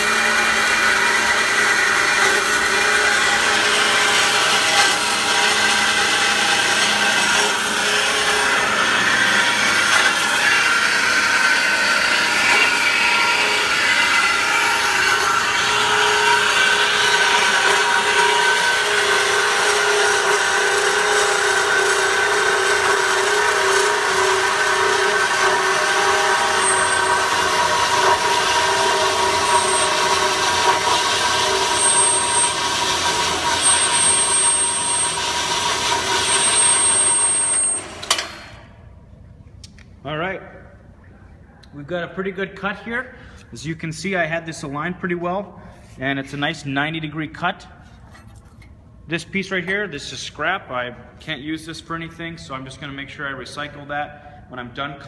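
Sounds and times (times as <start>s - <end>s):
saw blade rasping through metal: 0.0s - 38.4s
bandsaw motor hum: 0.0s - 38.7s.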